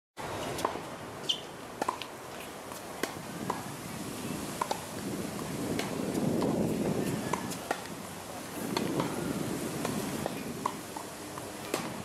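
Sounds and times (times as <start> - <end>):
tennis ball bouncing: 0.6 - 0.8, 1.8 - 2.1, 2.7 - 3.7, 4.6 - 8.0, 8.7 - 9.2, 9.8 - 12.0
tennis balls struck by rackets: 0.6 - 0.9, 1.8 - 2.1, 2.7 - 3.7, 4.6 - 8.0, 8.6 - 9.2, 9.8 - 12.0.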